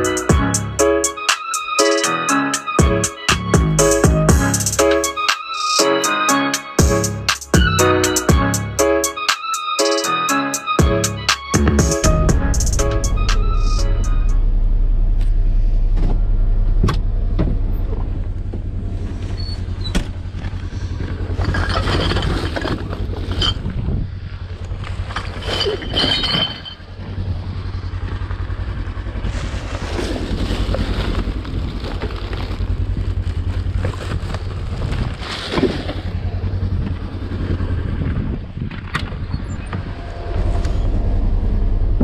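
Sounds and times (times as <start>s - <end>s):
vehicle engine running: 0.0s - 1.3s, 2.8s - 5.2s, 6.8s - 9.2s, 10.8s - 42.0s
footsteps crunching in snow: 29.4s - 36.1s.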